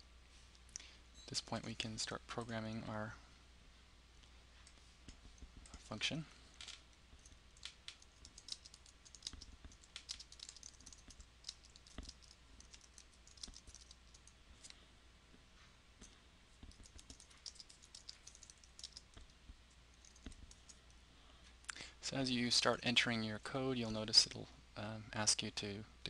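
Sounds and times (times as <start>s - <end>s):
faint keyboard typing: 4.6s - 14.8s, 16.0s - 21.0s.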